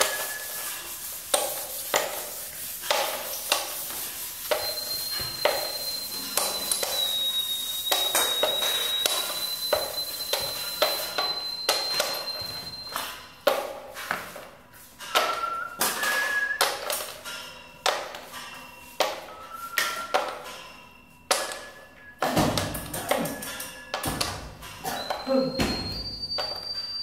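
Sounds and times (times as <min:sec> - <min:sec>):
objects struck with ringing hits: 0:04.5 - 0:13.8, 0:17.2 - 0:27.0.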